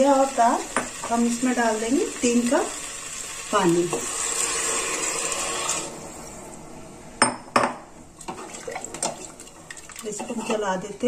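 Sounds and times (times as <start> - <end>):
water pouring into pot: 1.3 - 6.1, 8.2 - 10.2
spatula stirring and scraping: 8.2 - 10.9.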